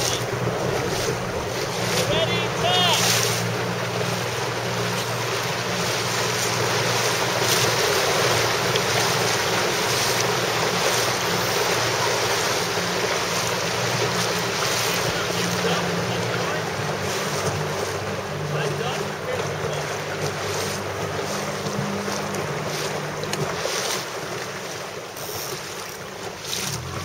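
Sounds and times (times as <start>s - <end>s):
wind buffeting microphone: 0.0s - 18.2s
low motor hum: 0.0s - 27.0s
water rushing past boat: 0.0s - 27.0s.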